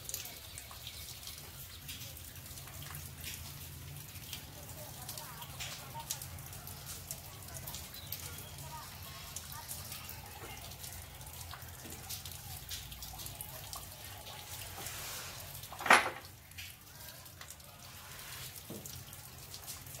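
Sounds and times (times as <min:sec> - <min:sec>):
light rain pattering on ground: 0:00.0 - 0:20.0
rainwater running off: 0:00.0 - 0:20.0.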